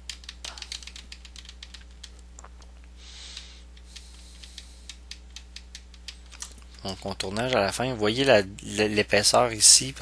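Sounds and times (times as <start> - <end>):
computer keys clicking: 0.0 - 2.6, 3.3 - 7.6
low electrical hum: 0.0 - 10.0.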